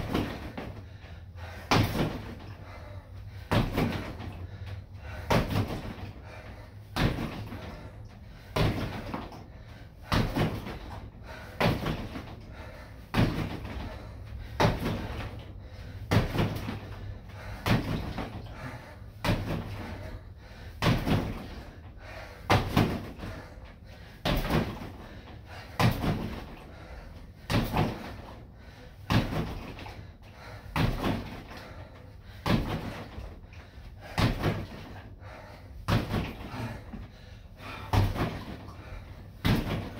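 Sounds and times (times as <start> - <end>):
kicks thudding on training dummy: 1.7 - 2.5, 3.4 - 4.3, 5.2 - 6.1, 6.9 - 7.7, 8.5 - 9.4, 10.0 - 11.0, 11.6 - 12.3, 13.1 - 14.0, 14.6 - 15.4, 16.1 - 16.9, 17.6 - 18.5, 19.2 - 19.9, 20.8 - 21.6, 22.5 - 23.2, 24.2 - 25.0, 25.8 - 26.6, 27.4 - 28.3, 29.0 - 29.9, 30.7 - 31.6, 32.4 - 33.2, 34.0 - 34.9, 35.8 - 37.1, 37.8 - 38.7, 39.4 - 39.9.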